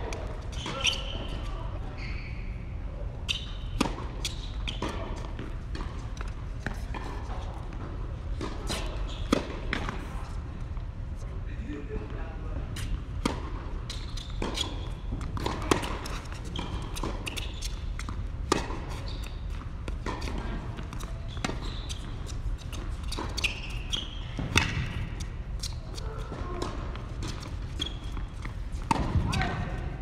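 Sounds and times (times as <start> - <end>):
tennis ball bounces: 13.2 - 29.6.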